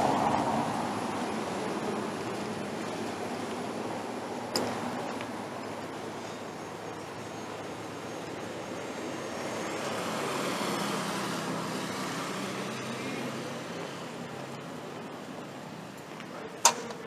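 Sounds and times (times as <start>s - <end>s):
vehicle passing: 0.0s - 6.0s, 7.6s - 14.9s.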